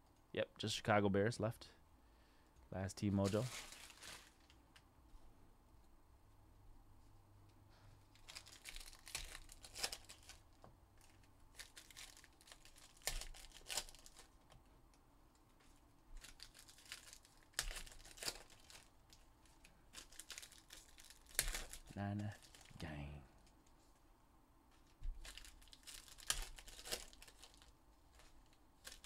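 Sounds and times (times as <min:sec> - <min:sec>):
foil wrappers crinkling and tearing: 0:03.2 - 0:04.6, 0:08.1 - 0:14.4, 0:16.2 - 0:22.8, 0:25.0 - 0:29.0.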